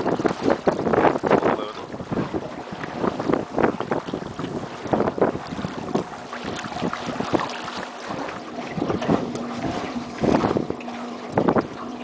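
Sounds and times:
faint motor hum: 0.0s - 12.0s
water splashing against hull: 0.0s - 12.0s
wind buffeting microphone: 0.0s - 12.0s.

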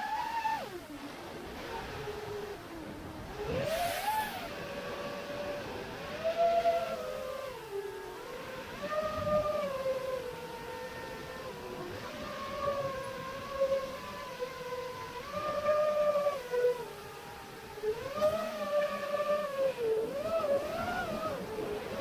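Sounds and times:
quadcopter motors whining: 0.0s - 22.0s
rush of air: 3.3s - 5.1s.

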